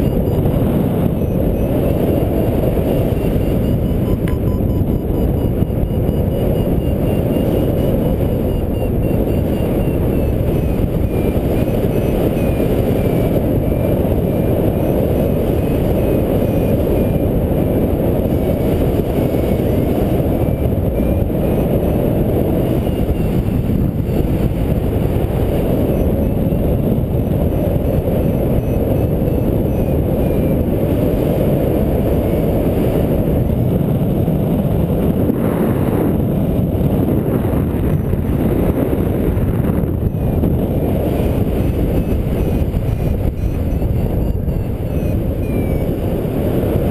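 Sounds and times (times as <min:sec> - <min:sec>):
faint variometer beeps: 0:00.0 - 0:33.6, 0:40.0 - 0:46.3
wind rushing over microphone: 0:00.0 - 0:46.9.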